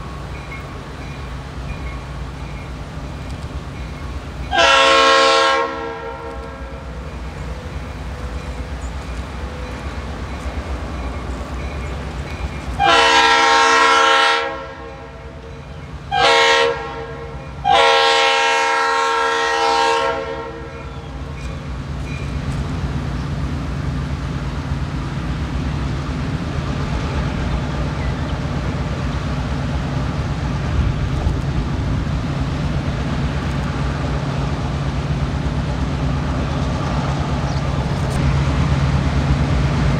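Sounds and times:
locomotive air horn blasts: 4.5 - 6.9, 12.8 - 15.4, 16.1 - 20.9.

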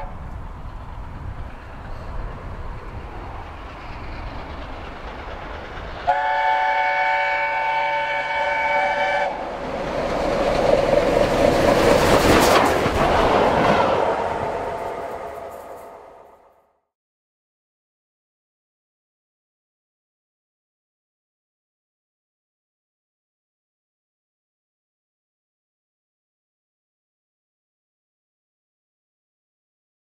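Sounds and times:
steam locomotive rumble: 0.0 - 16.4
exhaust and wheels noise: 0.0 - 16.5.

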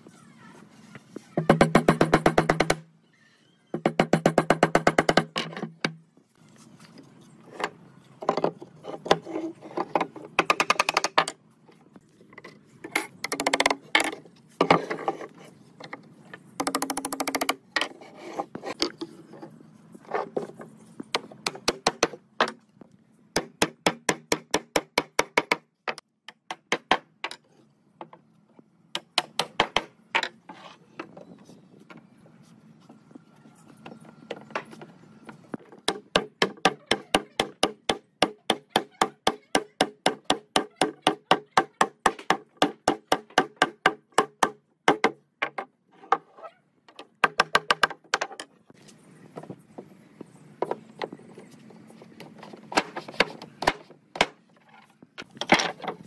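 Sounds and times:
hammer striking wood: 29.0 - 29.9, 35.9 - 45.6.

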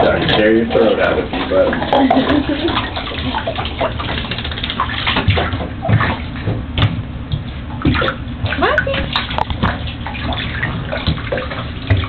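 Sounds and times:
puppy claws scrabbling on tub: 0.0 - 12.0
dull thumps against tub: 5.0 - 9.9, 10.6 - 12.0.

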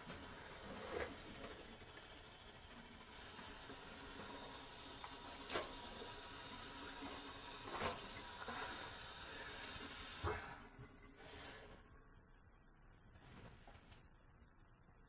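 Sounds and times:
faucet running into sink: 3.1 - 10.3.

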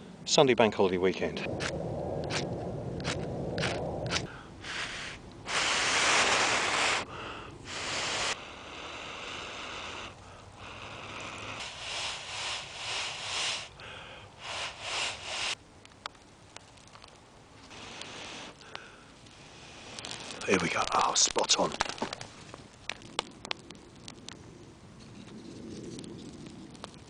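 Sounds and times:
person blowing into tinder: 2.3 - 15.6, 17.6 - 18.7.

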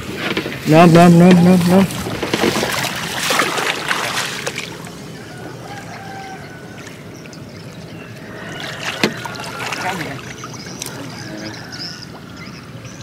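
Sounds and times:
water splashing and sloshing: 0.0 - 13.0
water trickling: 1.4 - 13.0.

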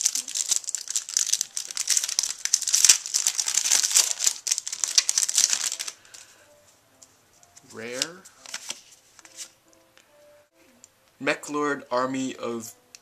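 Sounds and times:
foil wrapper crinkling: 0.0 - 6.4, 7.9 - 9.5.

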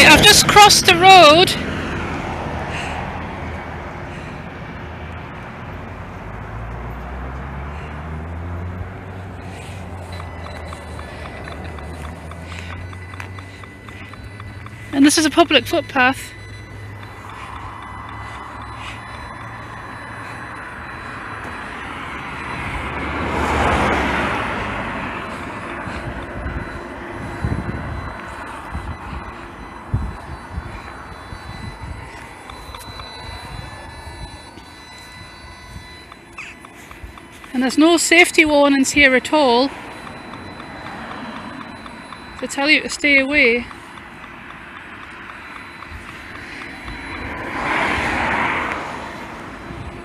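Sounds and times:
car passing: 0.0 - 50.0
vehicle engine rumbling: 0.0 - 50.0.

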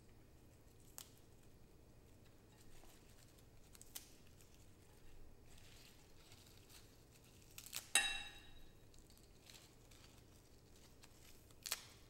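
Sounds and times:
herb leaves rustling and tearing: 0.7 - 1.5, 2.6 - 8.0, 8.9 - 12.0
ceramic clink: 8.0 - 8.7.

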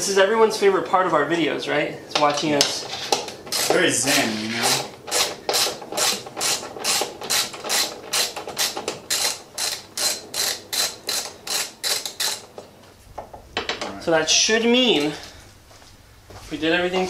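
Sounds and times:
ratchet wrench clicking: 4.6 - 12.4.

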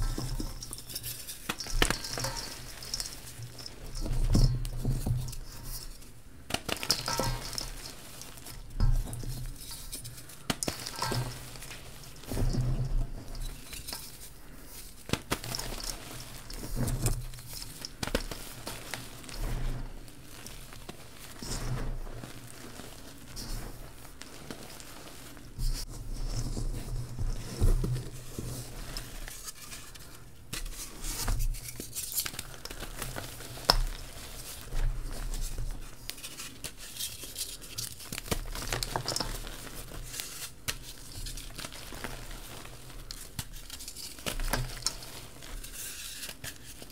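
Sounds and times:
hands crumbling chalk in bowl: 0.0 - 19.7, 20.3 - 46.9
chalk clumps cracking: 5.2 - 12.4.

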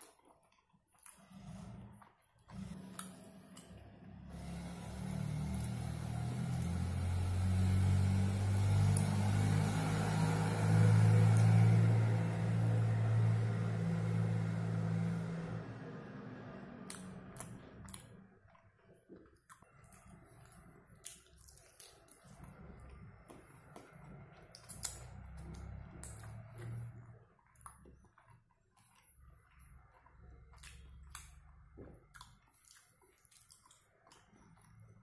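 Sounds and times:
vehicle engine passing by: 1.2 - 18.4, 22.2 - 27.4.

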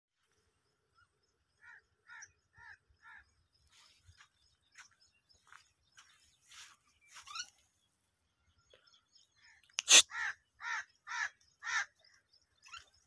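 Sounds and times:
crow cawing: 1.6 - 3.3, 10.1 - 12.0.

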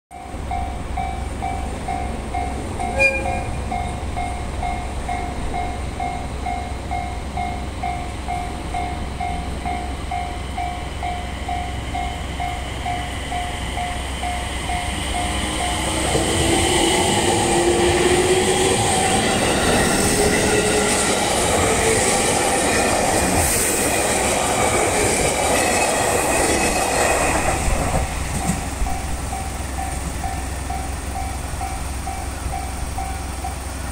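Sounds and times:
train horn toot: 2.8 - 3.6
train wheels clattering: 11.9 - 33.6.

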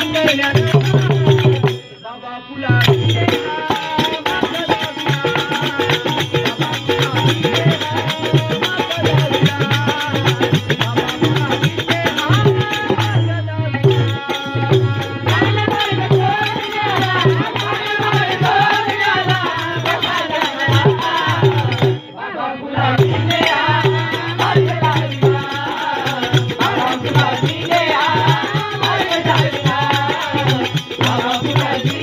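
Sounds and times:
barrel drum and tabla beat: 0.0 - 32.0
harmonium: 0.0 - 32.0
voices singing: 0.0 - 32.0.

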